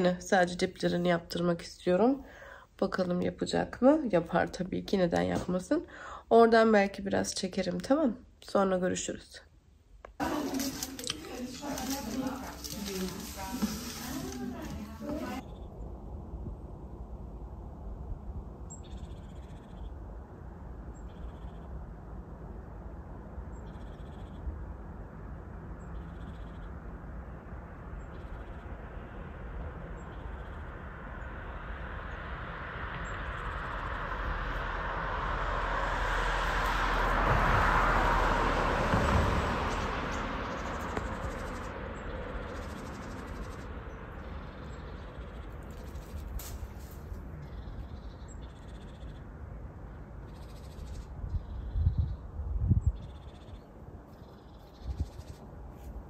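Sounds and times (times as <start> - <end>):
vehicle passing: 10.2 - 15.4, 24.6 - 51.6.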